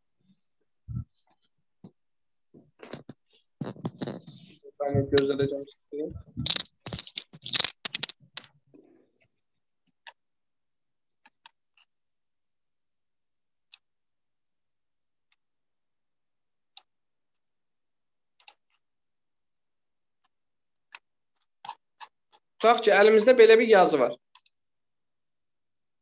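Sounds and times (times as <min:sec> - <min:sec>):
computer mouse clicking: 0:18.4 - 0:18.8, 0:24.3 - 0:24.6.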